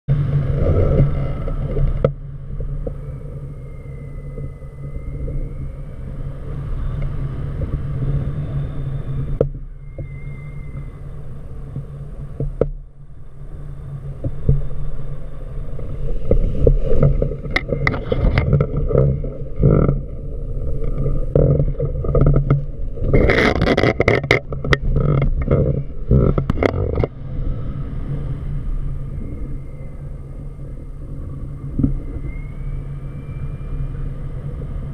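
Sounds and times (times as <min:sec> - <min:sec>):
wind rumble on microphone: 0:00.1 - 0:34.9
sharp crackles and pops: 0:00.4 - 0:27.2.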